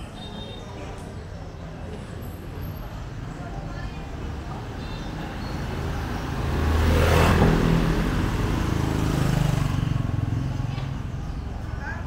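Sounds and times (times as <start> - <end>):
scooter engine passing close: 5.5 - 11.4.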